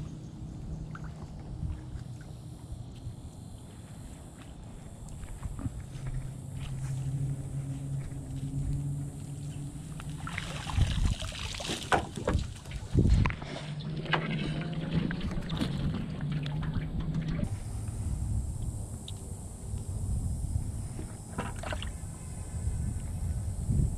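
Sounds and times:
low engine hum: 0.0s - 23.9s
net splashing and dripping water: 10.0s - 13.0s.

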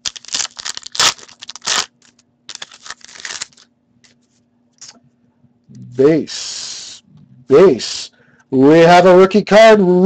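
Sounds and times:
wrapper ripping: 0.0s - 3.7s
cards rustling: 0.0s - 4.2s.

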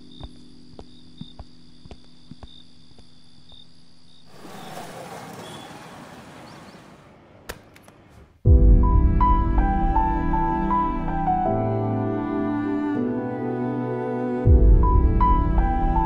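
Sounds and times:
crickets chirping: 0.0s - 4.8s
city ambience: 4.3s - 8.4s.

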